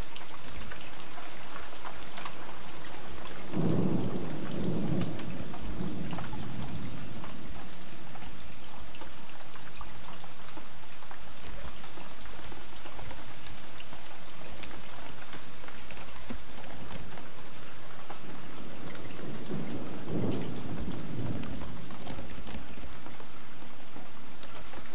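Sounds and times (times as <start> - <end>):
light rain ticking: 0.0 - 24.9
low rumble of thunder: 1.9 - 9.3, 15.9 - 23.8.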